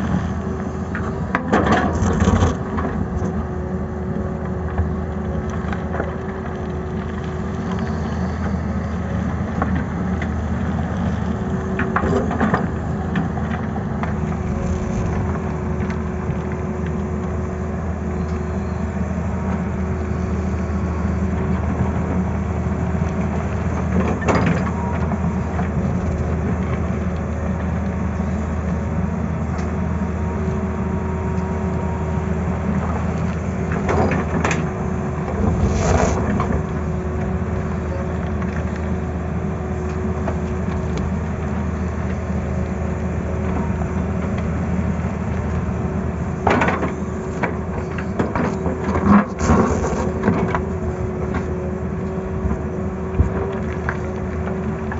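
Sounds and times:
excavator diesel engine running: 0:00.0 - 0:54.9
bucket scraping and knocking on rock: 0:35.4 - 0:36.6.

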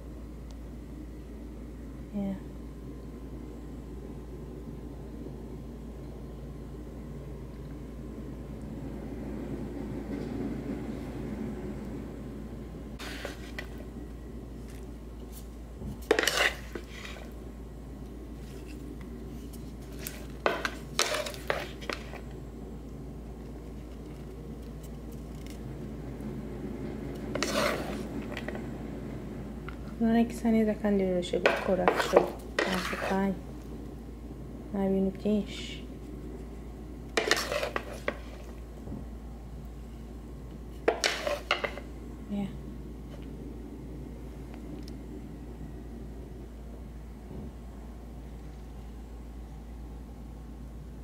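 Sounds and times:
spatula scraping wooden bowl: 0:13.0 - 0:13.8, 0:16.0 - 0:17.4, 0:19.8 - 0:22.2, 0:27.3 - 0:28.5, 0:31.4 - 0:33.4, 0:37.2 - 0:38.5, 0:40.9 - 0:41.8
salad leaves rustling: 0:18.3 - 0:22.2.

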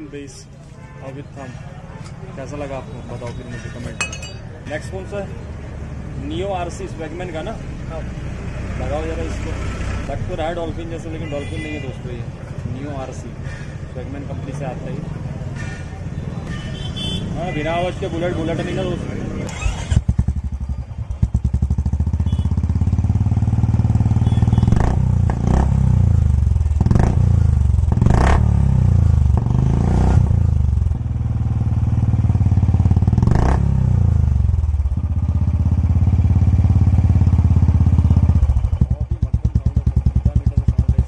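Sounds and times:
motorcycle engine revving: 0:19.2 - 0:41.0.

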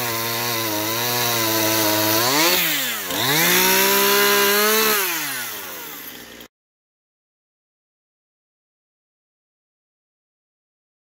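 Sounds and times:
chainsaw revving: 0:00.0 - 0:06.5.

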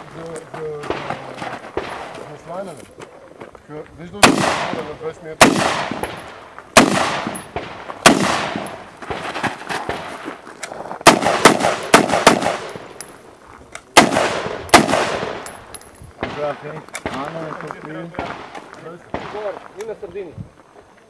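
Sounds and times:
rifle shots with echo: 0:04.2 - 0:09.2, 0:11.0 - 0:13.0, 0:14.0 - 0:19.6.

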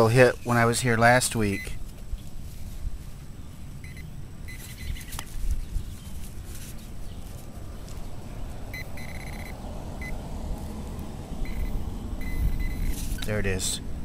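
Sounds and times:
metal detector pinpointer beeping: 0:01.5 - 0:01.8, 0:03.8 - 0:05.1, 0:08.7 - 0:10.2, 0:11.4 - 0:13.4
wind rumble on microphone: 0:04.6 - 0:13.2.

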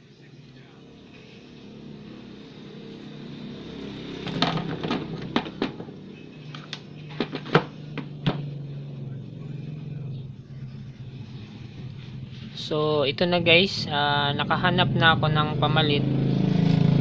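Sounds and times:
steady low hum: 0:00.0 - 0:17.0
small electronic parts clattering: 0:06.5 - 0:08.0.

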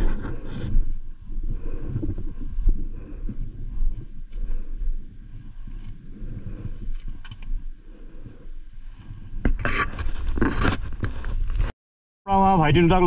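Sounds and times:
wind buffeting microphone: 0:00.0 - 0:09.6.

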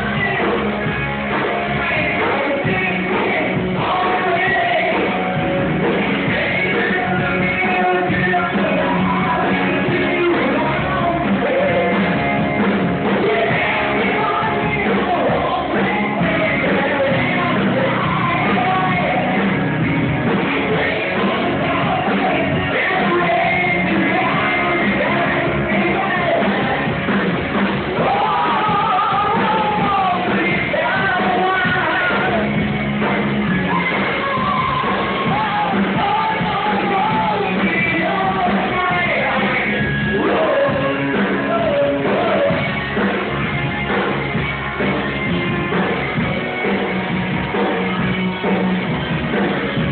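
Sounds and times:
rock band playing live: 0:00.0 - 0:49.9
singer shouting vocals: 0:01.6 - 0:05.2, 0:06.2 - 0:12.2, 0:13.1 - 0:19.4, 0:20.6 - 0:27.0, 0:27.9 - 0:32.6, 0:33.6 - 0:42.7.

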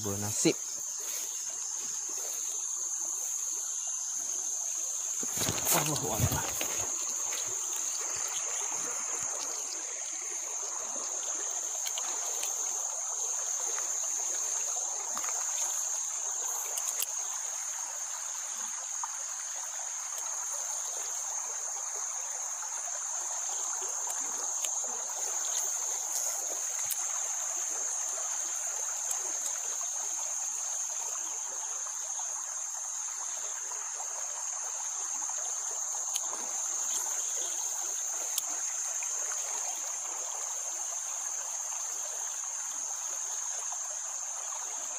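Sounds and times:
insects droning: 0:00.0 - 0:44.9
soft even hiss: 0:00.0 - 0:44.9.

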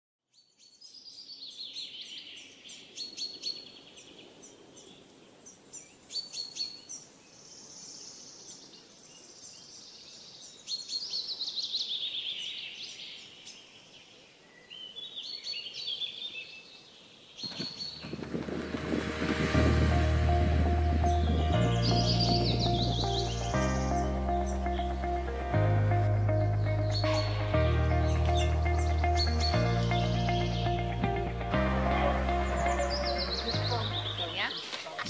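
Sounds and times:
songbirds singing: 0:00.3 - 0:19.0, 0:20.4 - 0:25.4, 0:26.2 - 0:35.0.

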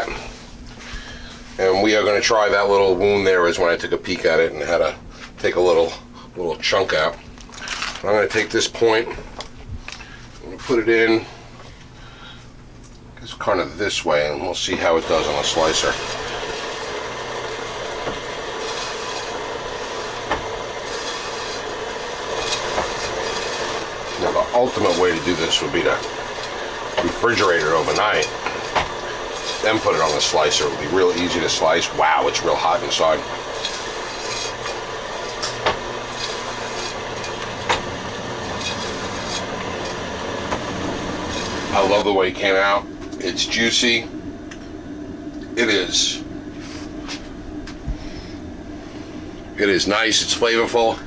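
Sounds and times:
meat slicer whirring: 0:14.7 - 0:51.0.

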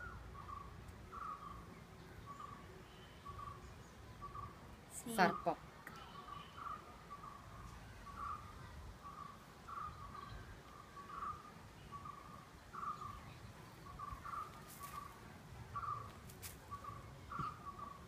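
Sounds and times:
bird calling: 0:00.0 - 0:01.7, 0:08.1 - 0:15.2, 0:15.8 - 0:18.0.

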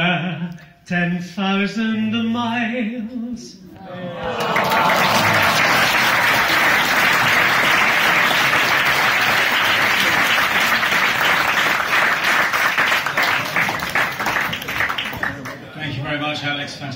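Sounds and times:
diners applauding: 0:04.2 - 0:15.6.

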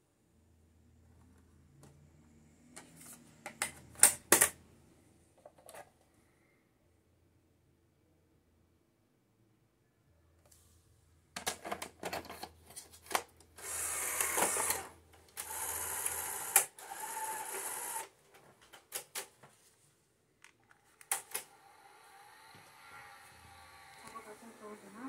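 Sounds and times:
loading motor whirring: 0:13.6 - 0:18.1, 0:21.0 - 0:25.0.

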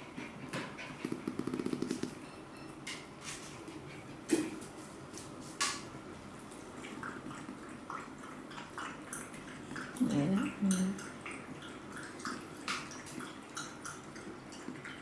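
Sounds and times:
dog lapping water: 0:06.2 - 0:15.0.

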